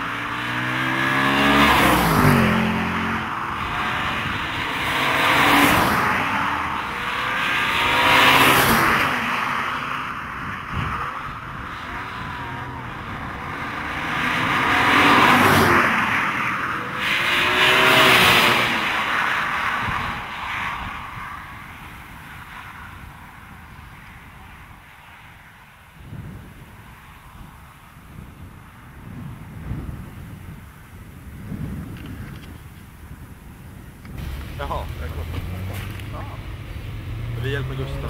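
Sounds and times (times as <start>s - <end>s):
cars driving past: 0.0s - 28.0s, 34.1s - 38.0s
tyre noise: 34.1s - 38.0s.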